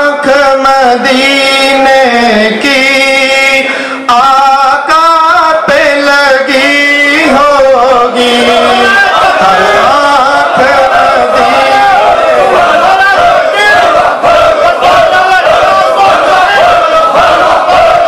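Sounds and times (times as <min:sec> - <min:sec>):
man singing into a microphone: 0:00.0 - 0:14.0.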